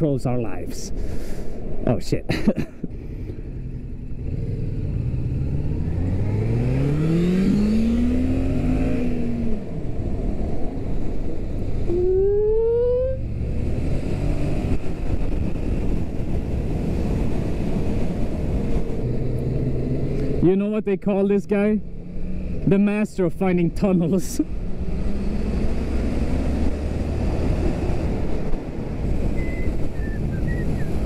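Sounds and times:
wind and road rush: 0:00.0 - 0:31.0
motorcycle engine revving: 0:03.5 - 0:11.0.

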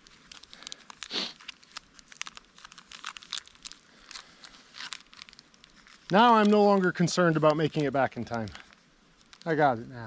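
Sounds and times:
crunchy bar being chewed: 0:00.0 - 0:06.8, 0:07.4 - 0:09.5
wrapper crinkling: 0:00.0 - 0:09.8.

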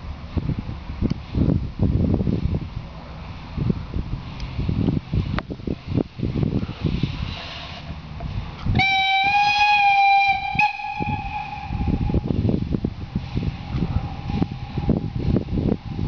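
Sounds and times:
wind buffeting microphone: 0:00.0 - 0:16.0
steam locomotive whistle blast: 0:08.8 - 0:12.4.

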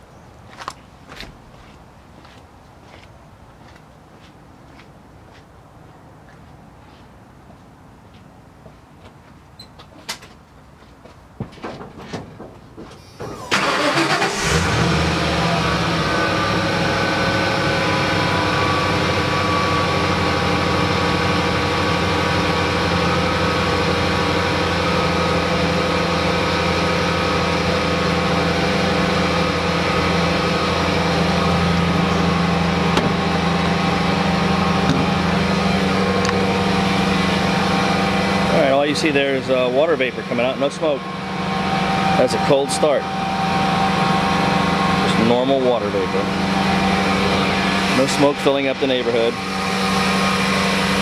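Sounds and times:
truck engine cranking and idling: 0:11.6 - 0:51.0.

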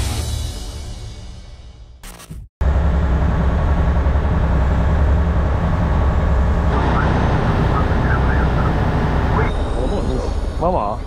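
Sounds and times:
boat engine humming: 0:02.6 - 0:11.0
water rushing along hull: 0:04.4 - 0:09.6.

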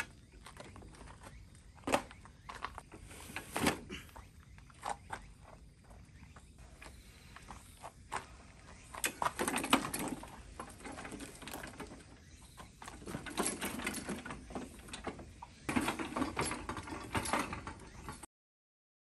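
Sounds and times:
metal rattling and scraping: 0:08.8 - 0:18.3.

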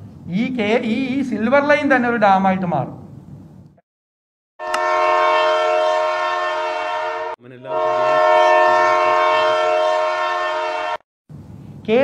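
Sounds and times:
train air horn blasts: 0:04.6 - 0:11.0.

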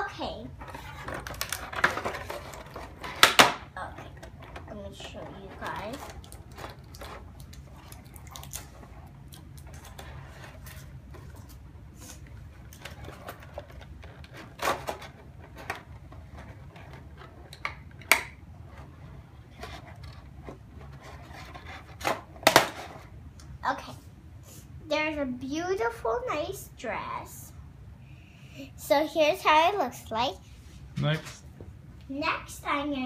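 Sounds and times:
low steady hum: 0:00.0 - 0:33.0
plastic packaging clicks and crinkles: 0:01.0 - 0:03.5, 0:04.1 - 0:11.6.

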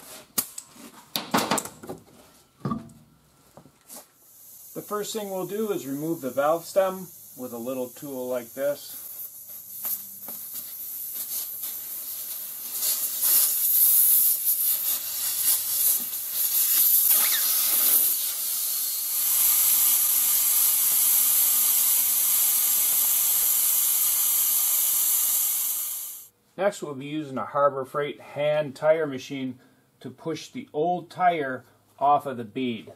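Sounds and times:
air hissing out of tire: 0:04.2 - 0:26.3.

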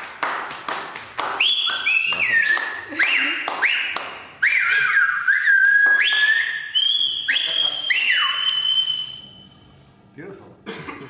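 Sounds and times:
high whistle-like tones: 0:01.4 - 0:09.8.

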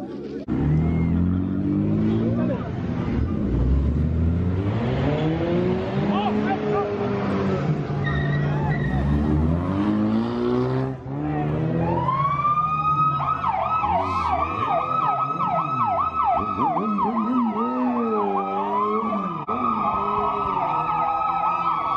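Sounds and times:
car engine revving: 0:00.4 - 0:21.0
police car siren: 0:11.4 - 0:21.9.

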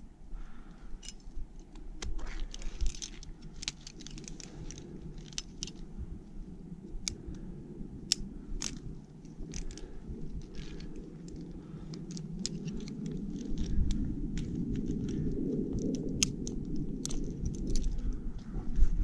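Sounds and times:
steady low rumble: 0:00.0 - 0:19.0
climbing hardware clinking on rock: 0:00.9 - 0:05.9, 0:08.1 - 0:18.3.

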